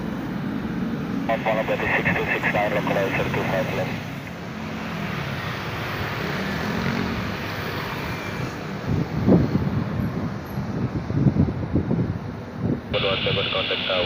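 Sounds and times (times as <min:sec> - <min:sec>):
jet airliner rumble and hiss: 0:00.0 - 0:04.4, 0:12.6 - 0:14.0.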